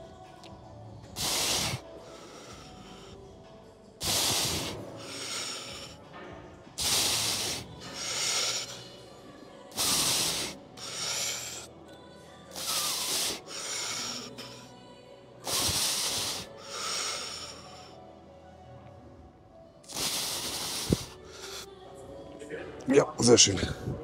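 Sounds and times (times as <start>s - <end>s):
man breathing hard: 1.2s - 3.3s, 4.0s - 6.1s, 6.8s - 9.1s, 9.7s - 11.8s, 12.5s - 14.8s, 15.4s - 18.0s, 19.9s - 21.7s.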